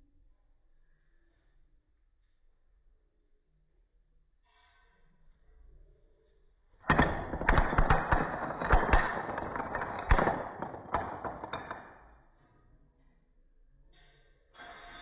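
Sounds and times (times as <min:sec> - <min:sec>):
wooden blocks crashing on floor: 0:06.9 - 0:12.1.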